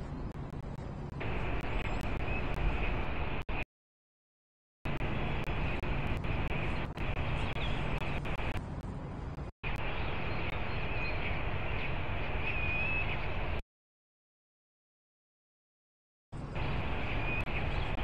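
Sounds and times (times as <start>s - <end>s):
city traffic hum: 0.0s - 3.7s, 4.9s - 13.6s, 16.4s - 18.0s.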